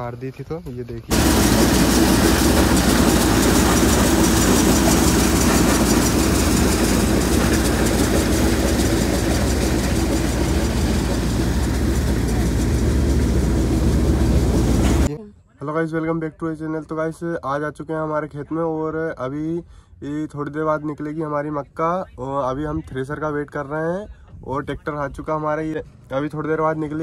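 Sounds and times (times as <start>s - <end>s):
low engine hum: 1.1s - 15.1s
maize pouring out: 1.1s - 15.1s
maize thresher mechanical din: 1.1s - 15.1s.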